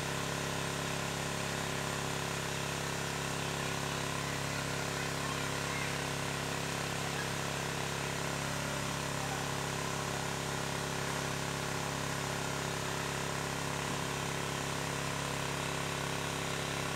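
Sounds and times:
steady motor drone: 0:00.0 - 0:16.9.

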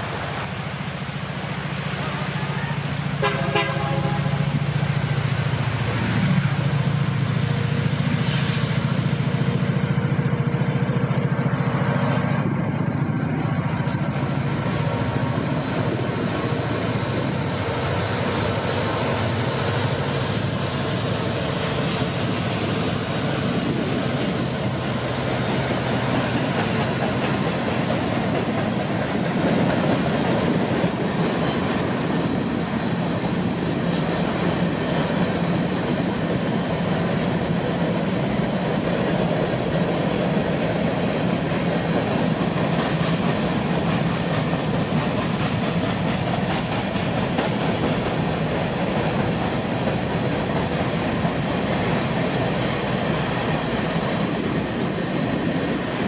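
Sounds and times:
locomotive engines humming: 0:00.0 - 0:56.0
train wheels on rails: 0:00.0 - 0:56.0
train horn toot: 0:02.0 - 0:04.6.

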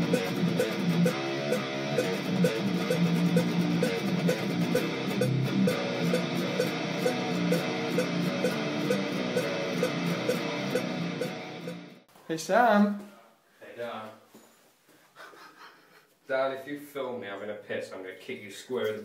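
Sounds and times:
electric guitar riff: 0:00.0 - 0:12.0
steady ticking: 0:00.0 - 0:12.0.

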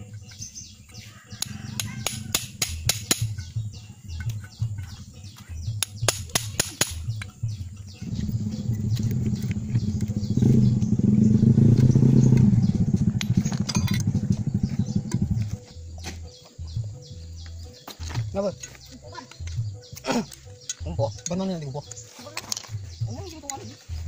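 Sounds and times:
sharp metallic clinks: 0:00.0 - 0:16.1
engine pulsing rumble: 0:00.0 - 0:24.0.

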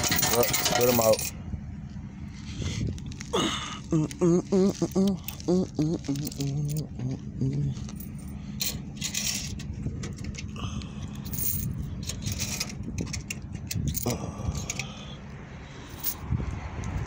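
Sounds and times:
coins jingling and clinking: 0:00.0 - 0:01.3, 0:05.2 - 0:07.0, 0:07.8 - 0:09.7, 0:11.1 - 0:14.8, 0:15.9 - 0:16.2
low hum: 0:01.2 - 0:17.0.

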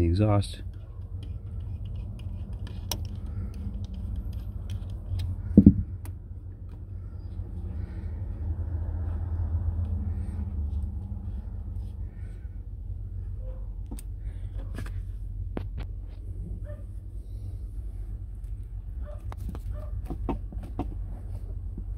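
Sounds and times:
steady low rumble: 0:00.0 - 0:20.1
hose rubbing and scraping: 0:00.5 - 0:05.8
thud: 0:05.6 - 0:05.9.

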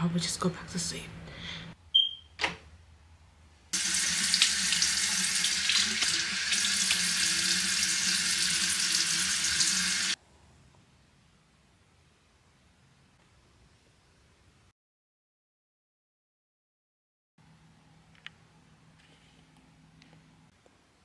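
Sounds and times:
tap water pouring into basin: 0:03.8 - 0:10.2.

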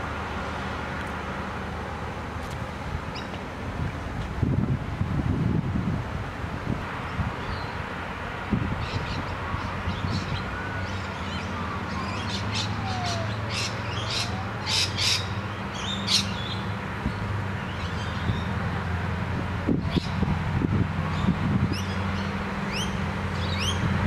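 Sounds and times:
distant diesel engine drone: 0:00.0 - 0:24.0
birds chirping and squawking: 0:11.0 - 0:16.7.

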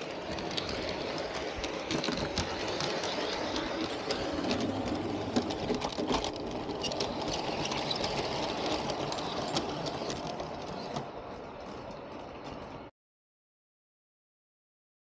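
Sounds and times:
model train motor whirring: 0:00.0 - 0:11.6
wheels clicking over rail joints: 0:00.0 - 0:12.9.

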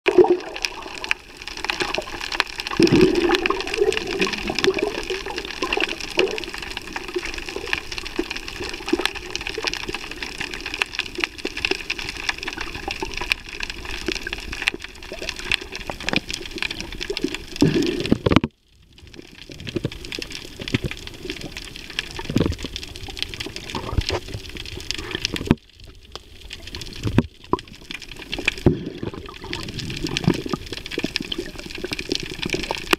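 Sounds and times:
underwater water hiss: 0:17.1 - 0:18.3.

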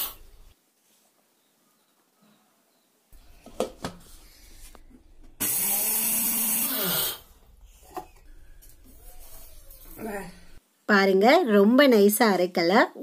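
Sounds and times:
mixer grinder grinding grain: 0:04.1 - 0:07.4.

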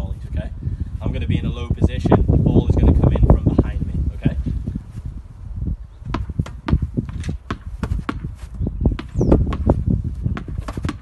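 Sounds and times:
wind on microphone: 0:00.0 - 0:11.0
tennis balls hitting racket: 0:06.1 - 0:11.0.

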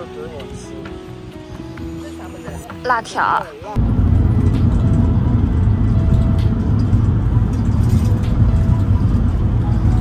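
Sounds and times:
car road rumble: 0:03.8 - 0:10.0.

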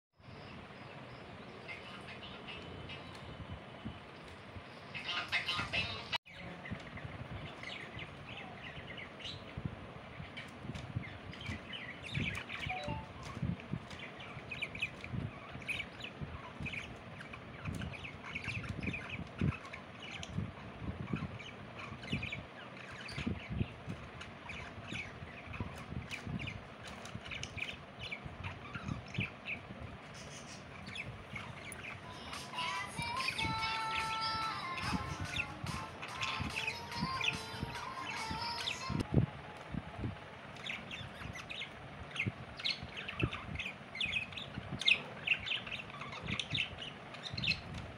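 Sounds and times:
budgerigars chirping: 0:05.0 - 0:39.0, 0:40.6 - 0:47.9.

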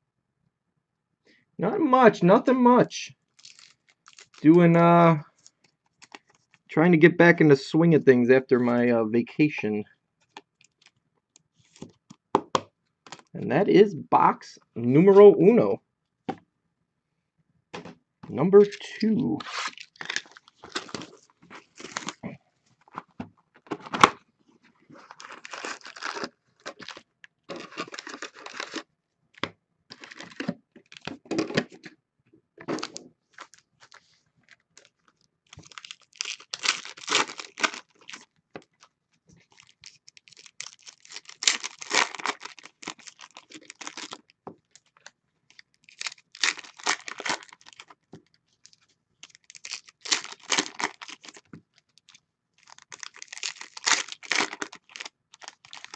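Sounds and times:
card packs crinkling and tearing: 0:03.3 - 0:04.7, 0:05.3 - 0:06.6, 0:13.1 - 0:13.3, 0:18.6 - 0:23.1, 0:24.9 - 0:31.9, 0:32.6 - 0:55.9.

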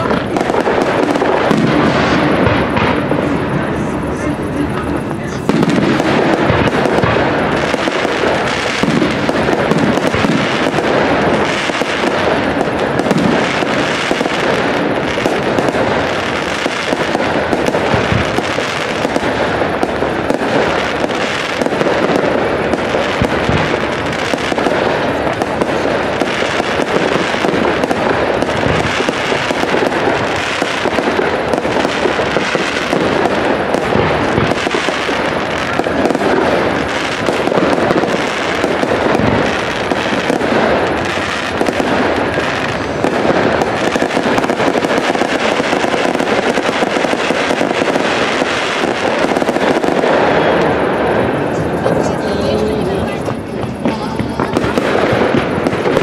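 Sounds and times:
deep firework bangs: 0:00.0 - 0:56.0
fireworks crackling: 0:00.0 - 0:56.0.

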